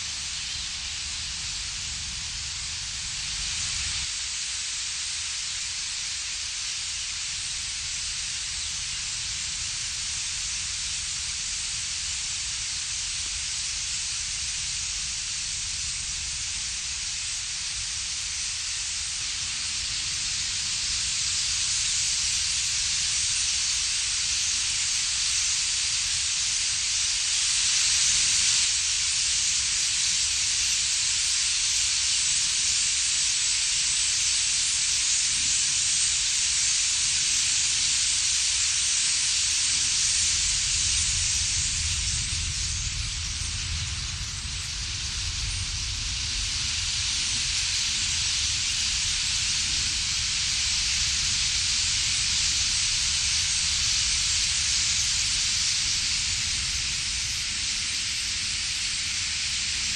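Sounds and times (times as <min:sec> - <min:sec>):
flock of starlings chattering: 0:18.4 - 0:31.4, 0:35.2 - 0:59.9
wind rumbling on microphone: 0:39.6 - 0:59.9.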